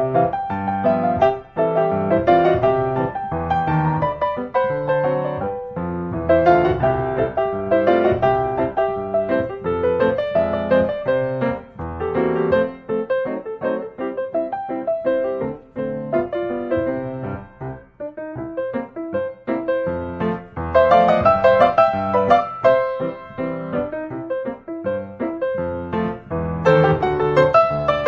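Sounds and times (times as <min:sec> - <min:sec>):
gentle piano music: 0:00.0 - 0:28.0.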